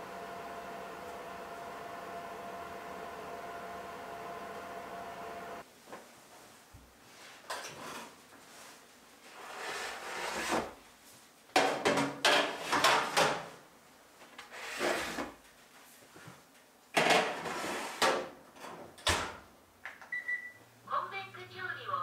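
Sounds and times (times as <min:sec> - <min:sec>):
metal sheets scraping on wood: 0:09.3 - 0:10.7.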